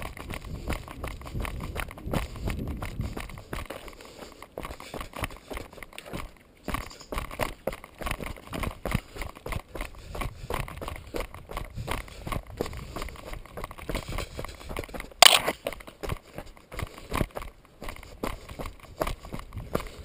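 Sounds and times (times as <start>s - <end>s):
wind rumbling on microphone: 0.0s - 3.9s, 9.6s - 15.0s, 18.1s - 20.0s
bicycle rattling over gravel: 0.0s - 20.0s.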